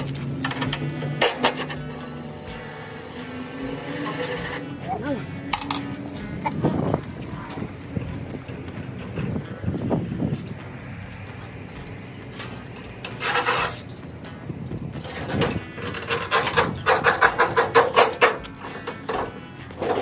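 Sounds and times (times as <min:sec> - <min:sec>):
strap rubbing and rasping: 0:12.7 - 0:14.0, 0:14.7 - 0:20.0.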